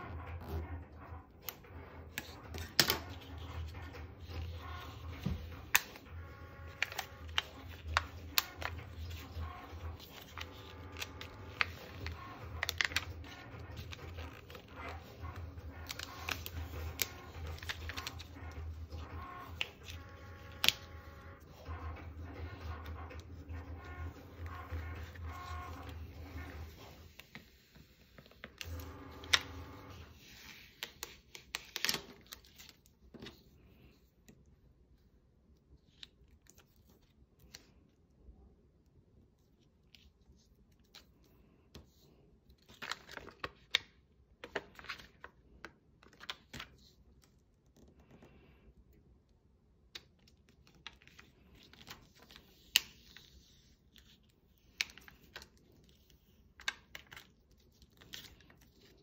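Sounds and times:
rustling and tearing: 2.2 - 33.0.

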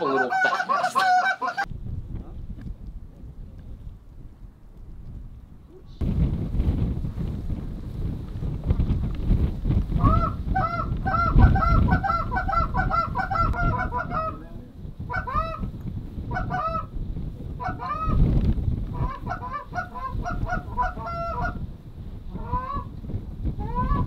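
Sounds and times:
geese honking: 0.0 - 1.7, 10.0 - 14.4, 16.3 - 16.9, 19.0 - 21.6
wind on microphone: 0.0 - 24.0.

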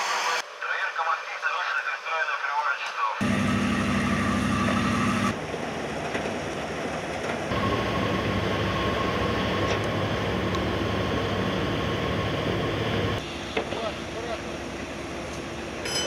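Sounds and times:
steady high whine: 3.2 - 5.4, 7.5 - 14.8
diesel engines rumbling: 3.2 - 16.0.

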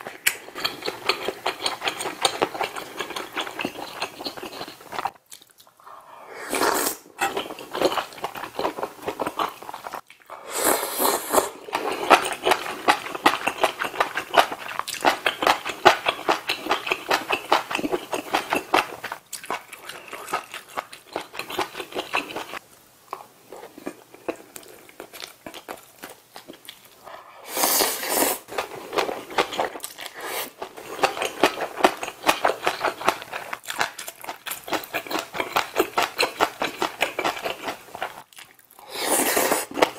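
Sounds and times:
wet chewing: 0.0 - 6.0, 11.2 - 27.8, 28.6 - 39.9
noodles slurped: 6.2 - 7.1, 9.4 - 14.7, 38.4 - 39.9.

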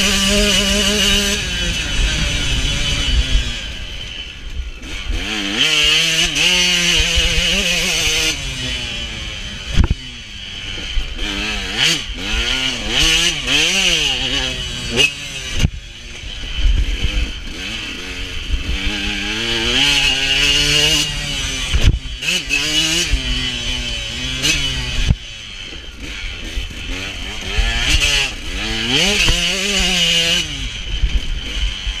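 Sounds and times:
wind rumble on microphone: 0.0 - 5.2, 9.6 - 10.2, 18.2 - 22.2
motocross bike engine revving: 0.0 - 32.0.

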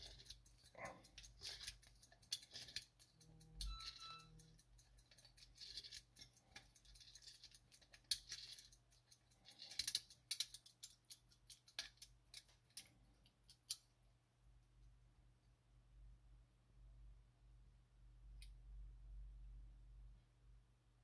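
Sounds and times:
clock ratchet clicking: 0.0 - 12.1.

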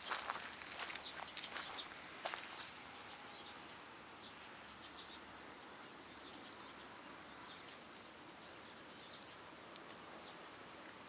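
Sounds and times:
faint outdoor hiss: 0.0 - 11.0.

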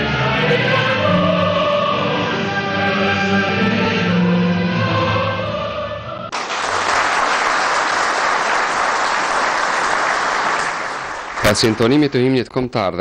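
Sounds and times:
choir singing an anthem: 0.0 - 6.3
audience applauding: 6.3 - 12.3.

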